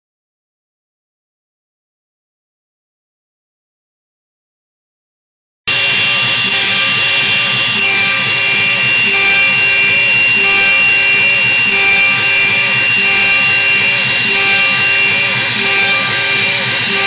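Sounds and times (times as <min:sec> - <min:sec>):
router spindle whine: 0:05.7 - 0:17.0.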